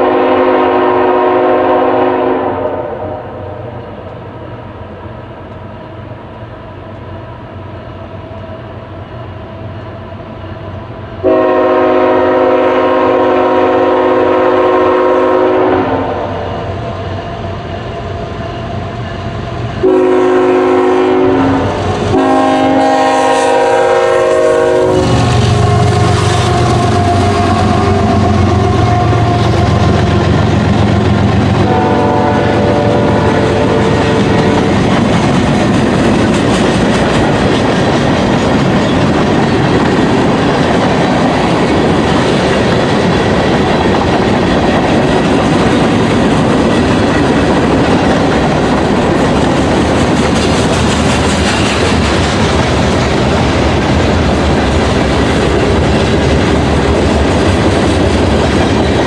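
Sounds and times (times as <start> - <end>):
locomotive horn: 0.0 - 3.7, 11.2 - 16.6, 19.8 - 34.9
train wheels rumbling on rails: 0.0 - 59.0.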